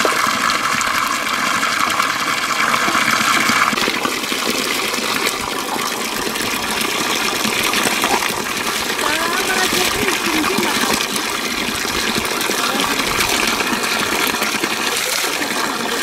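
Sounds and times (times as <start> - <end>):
water gushing onto rocks: 0.0 - 16.0.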